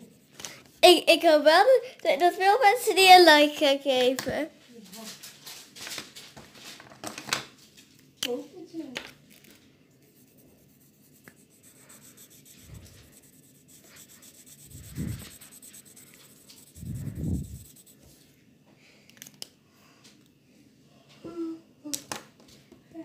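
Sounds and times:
pen scratching on paper: 10.1 - 18.0.

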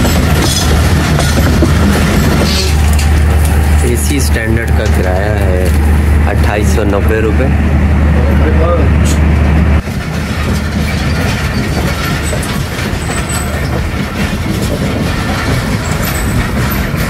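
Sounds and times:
train wheels rumbling on rails: 0.0 - 17.0
loud low hum: 1.7 - 9.8.

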